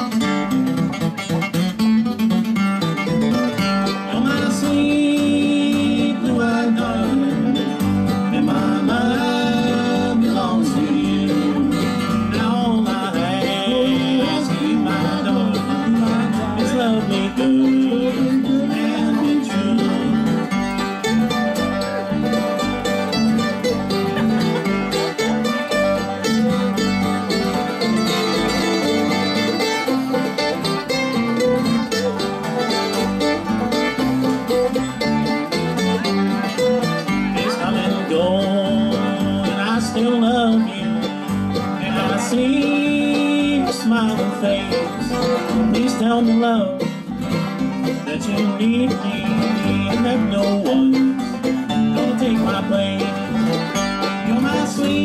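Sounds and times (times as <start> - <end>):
bluegrass band playing: 0.0 - 55.0.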